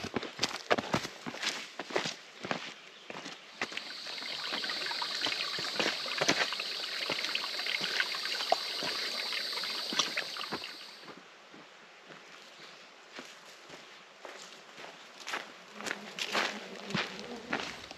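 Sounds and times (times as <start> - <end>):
faint footsteps on dirt: 0.0 - 4.1, 9.5 - 17.9
footsteps on creek stones: 0.0 - 4.1, 8.5 - 17.9
creek trickling over rocks: 3.4 - 11.1.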